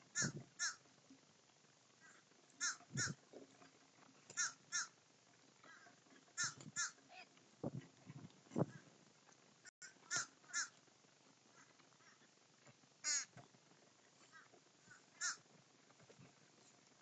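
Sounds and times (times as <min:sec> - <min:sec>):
crows cawing: 0:00.2 - 0:00.8, 0:02.0 - 0:03.2, 0:04.4 - 0:05.0, 0:05.6 - 0:07.0, 0:09.8 - 0:10.8, 0:13.0 - 0:13.3, 0:14.3 - 0:15.4.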